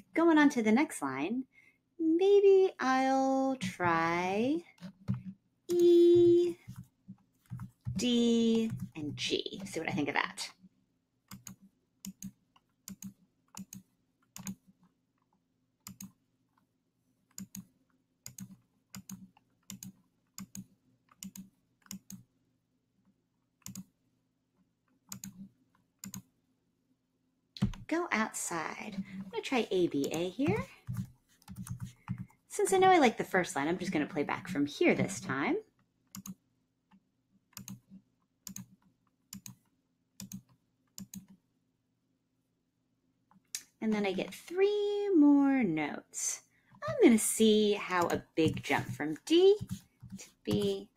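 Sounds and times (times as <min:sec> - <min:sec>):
computer mouse clicking: 0:11.3 - 0:14.7, 0:15.8 - 0:16.2, 0:17.3 - 0:22.2, 0:23.6 - 0:23.9, 0:25.0 - 0:26.3, 0:30.0 - 0:32.4, 0:36.1 - 0:36.4, 0:37.5 - 0:41.4.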